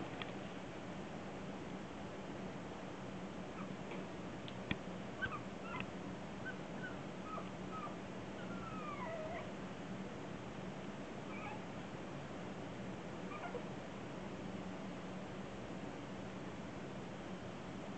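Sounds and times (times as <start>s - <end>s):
puppies whimpering: 6.4s - 9.5s, 11.3s - 11.6s, 13.3s - 13.7s.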